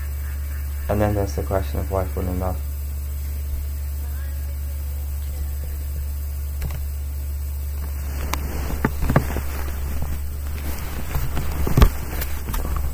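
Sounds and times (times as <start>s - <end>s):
low hum: 0.0s - 12.9s
webcam handling knocks and rustles: 7.8s - 12.9s.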